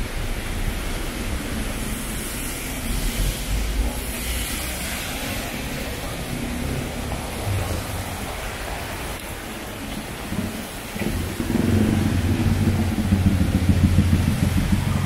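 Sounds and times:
traffic hiss: 0.0s - 15.0s
large vehicle engine droning: 10.1s - 15.0s.

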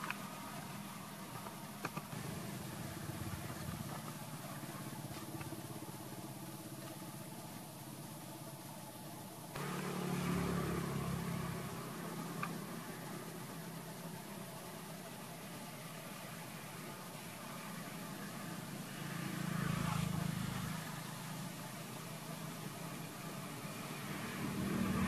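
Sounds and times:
motor engine humming: 0.0s - 25.0s
faint clicks: 12.4s - 12.6s.

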